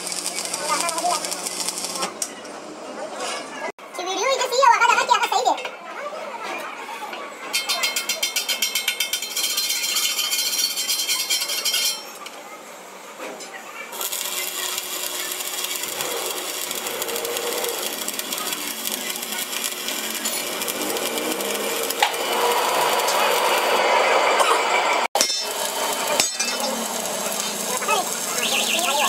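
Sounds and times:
welding arc crackle: 0.0s - 2.3s, 13.9s - 24.0s, 25.0s - 29.0s.

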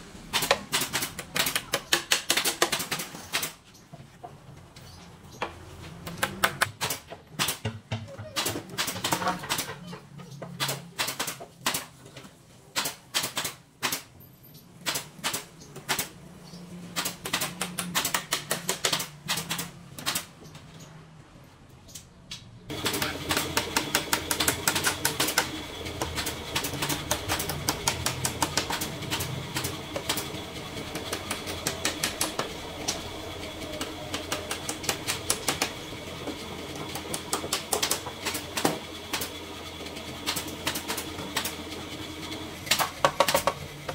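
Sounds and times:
steady hum: 22.7s - 39.2s.

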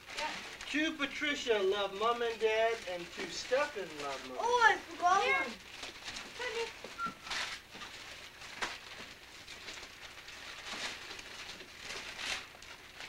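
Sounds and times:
wrapping paper rustling: 0.0s - 13.0s.

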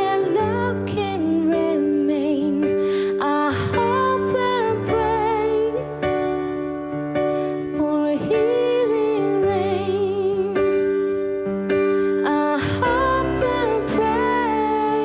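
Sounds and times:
woman singing with vibrato: 0.0s - 6.0s, 7.7s - 10.8s, 12.2s - 15.0s
bass: 0.0s - 15.0s
keyboard chords: 0.0s - 15.0s.

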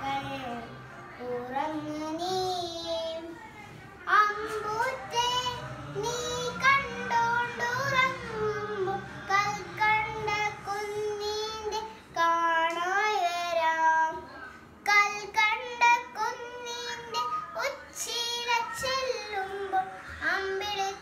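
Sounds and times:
boy singing: 0.0s - 3.4s, 4.0s - 21.0s.

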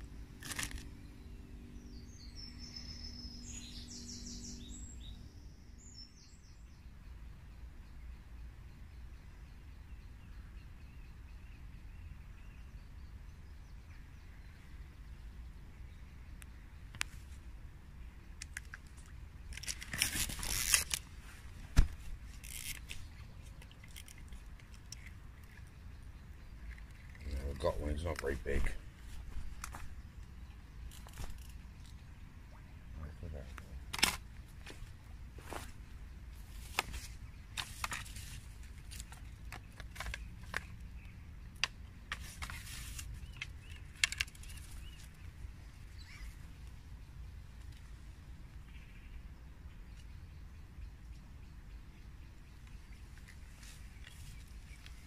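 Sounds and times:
bird chirps: 0.0s - 16.9s
rustling and scraping: 0.4s - 0.9s, 18.7s - 25.7s, 30.9s - 32.0s, 33.9s - 40.8s, 42.1s - 45.2s.

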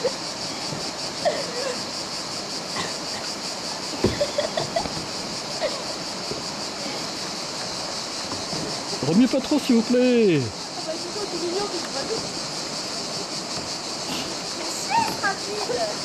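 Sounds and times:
river rapid rushing: 0.0s - 16.0s
dull knock: 4.0s - 5.0s.

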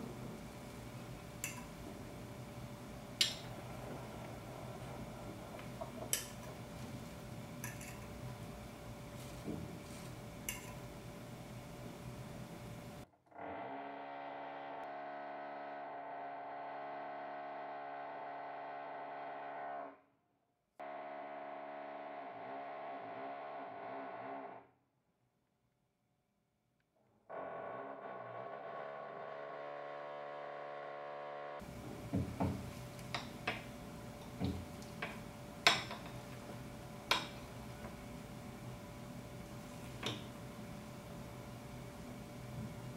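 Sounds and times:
fork clinking on glass plate: 7.6s - 8.1s.

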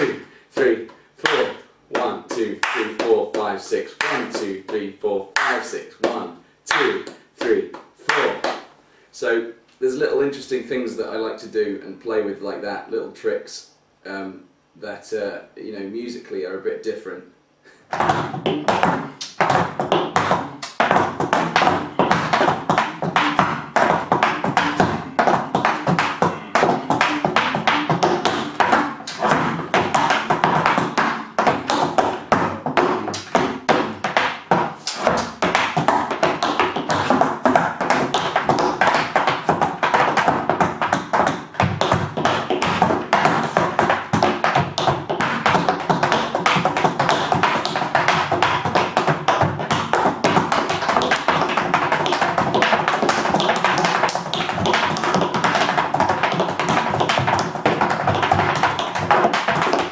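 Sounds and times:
tap shoes dancing on wood: 1.3s - 4.8s, 17.9s - 59.9s.

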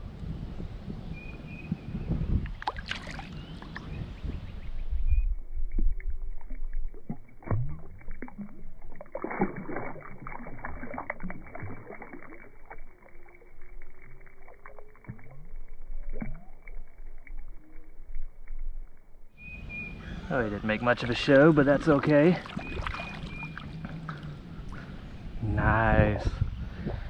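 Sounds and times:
fish splashing in water: 2.5s - 3.9s, 5.7s - 18.2s, 20.8s - 25.0s.

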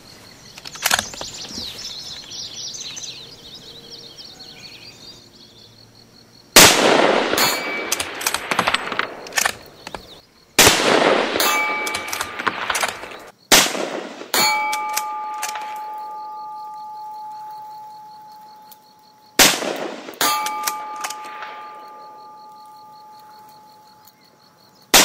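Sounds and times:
rifle shots with echo: 6.6s - 9.9s, 10.6s - 15.8s, 19.4s - 22.4s
steel target ringing: 7.3s - 8.2s, 11.4s - 12.5s, 14.3s - 17.4s, 20.2s - 23.8s.

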